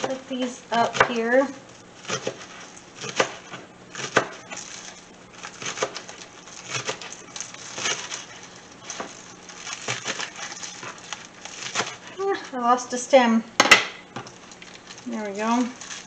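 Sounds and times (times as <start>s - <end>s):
knife chopping on cutting board: 0.8s - 1.3s, 2.0s - 4.6s, 5.6s - 6.0s.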